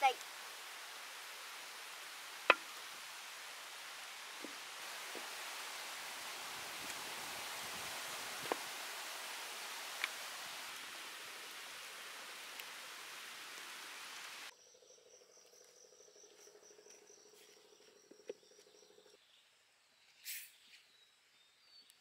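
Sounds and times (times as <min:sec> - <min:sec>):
steady hiss: 0:00.0 - 0:14.5, 0:20.2 - 0:20.7
insects chirping: 0:00.0 - 0:21.9.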